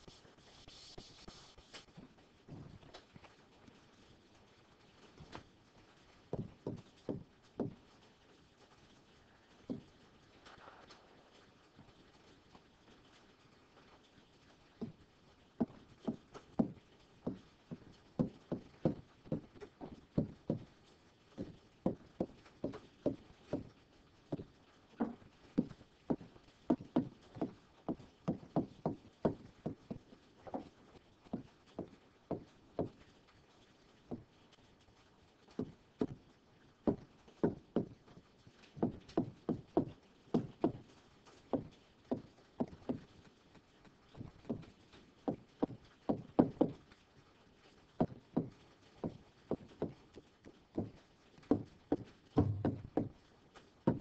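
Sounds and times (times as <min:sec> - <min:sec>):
stylus tapping on touchscreen: 0:52.4 - 0:53.1.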